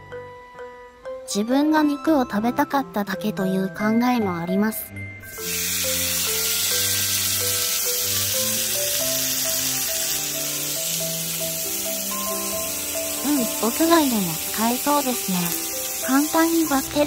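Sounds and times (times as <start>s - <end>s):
background music: 0.0s - 17.0s
meat sizzling: 5.3s - 17.0s.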